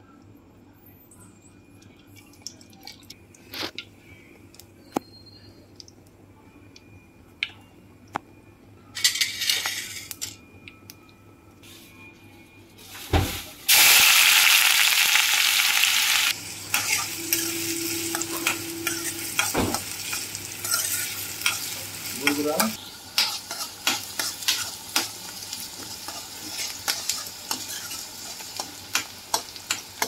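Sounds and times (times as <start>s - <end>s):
onions sizzling in hot oil: 13.0s - 30.0s.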